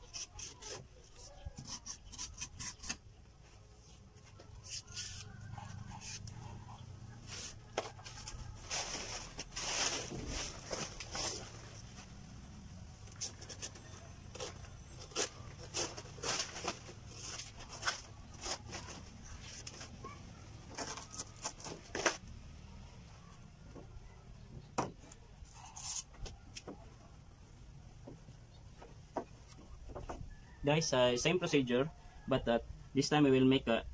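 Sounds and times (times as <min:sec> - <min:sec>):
knife scraping leaf stalk: 0:00.0 - 0:03.0, 0:04.6 - 0:06.3, 0:13.1 - 0:18.9, 0:25.5 - 0:26.1
leaf tearing: 0:14.3 - 0:19.0.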